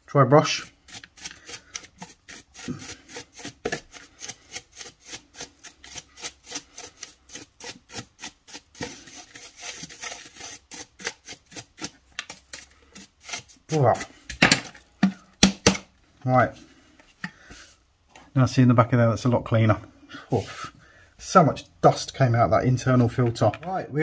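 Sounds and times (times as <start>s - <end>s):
paintbrush bristles scrubbing: 0.4s - 14.2s.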